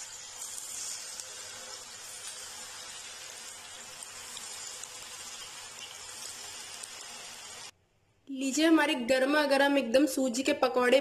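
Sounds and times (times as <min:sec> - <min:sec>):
hot oil sizzling: 0:00.0 - 0:07.7.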